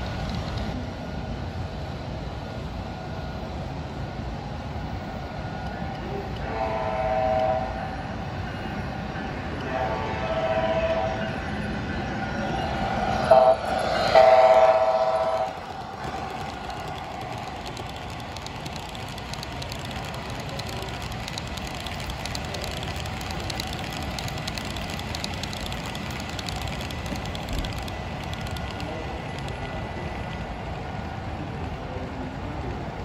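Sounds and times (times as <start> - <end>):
model train running noise: 0.0 - 33.0
model train wheels clicking: 13.1 - 33.0.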